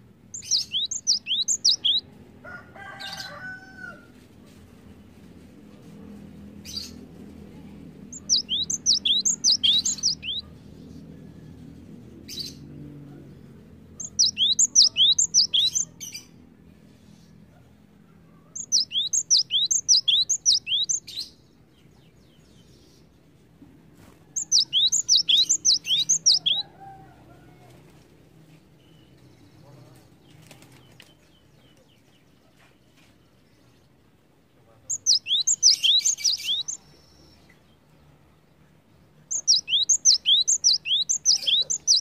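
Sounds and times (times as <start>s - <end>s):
bird singing whistled notes: 0.4s - 2.0s, 8.1s - 10.4s, 14.0s - 16.2s, 18.6s - 21.3s, 24.4s - 26.6s, 34.9s - 37.4s, 39.3s - 42.0s.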